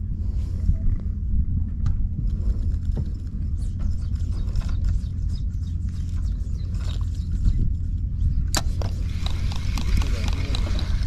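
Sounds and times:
wind buffeting microphone: 0.0s - 11.0s
fishing reel ticks and scrapes: 8.8s - 11.0s.

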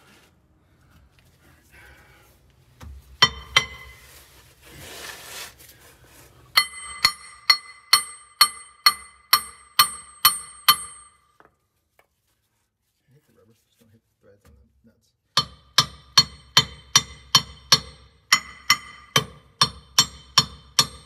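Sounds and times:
hammer striking steel rod: 3.2s - 4.1s, 6.6s - 11.4s, 15.4s - 21.0s.

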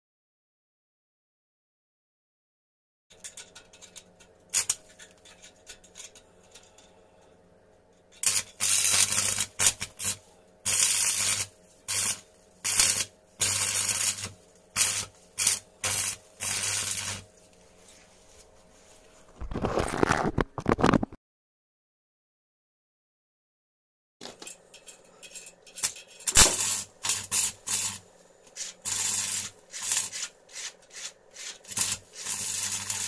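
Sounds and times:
electric arc welding crackling: 4.5s - 4.9s, 8.2s - 17.3s, 25.8s - 33.0s.

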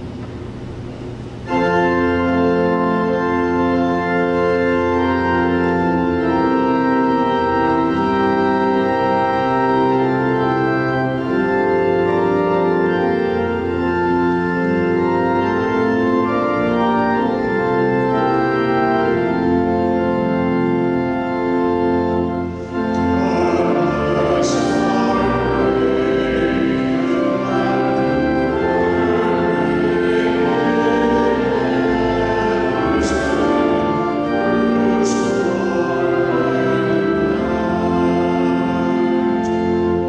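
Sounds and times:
church organ chords: 0.0s - 40.0s.

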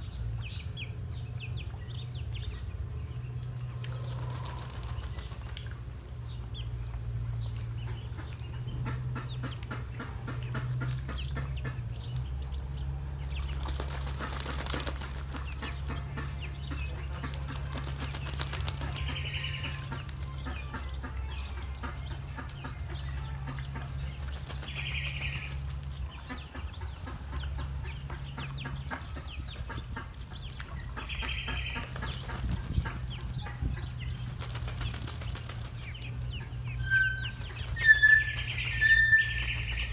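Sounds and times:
ducklings splashing in water: 0.0s - 39.9s
duck wings flapping: 4.0s - 5.8s, 13.4s - 15.8s, 17.2s - 20.7s, 23.8s - 25.9s, 31.8s - 33.2s, 34.1s - 36.2s, 37.2s - 39.9s.

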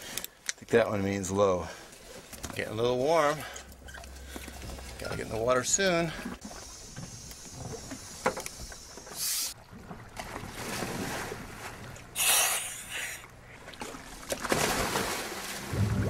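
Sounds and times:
water: 0.0s - 16.0s
wind: 0.0s - 16.0s
diver splashing into water: 13.8s - 16.0s.

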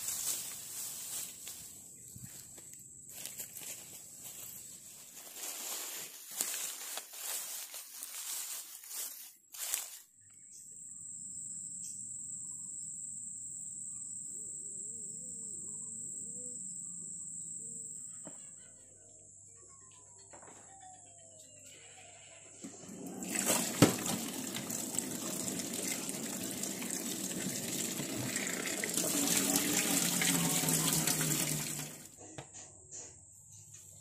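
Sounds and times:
dry grass and leaves rustling: 0.0s - 10.2s
high insect drone: 10.6s - 19.0s.

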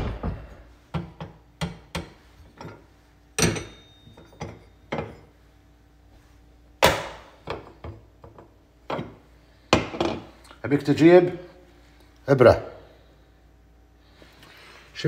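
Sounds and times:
metal burner parts clinking: 2.0s - 5.3s.

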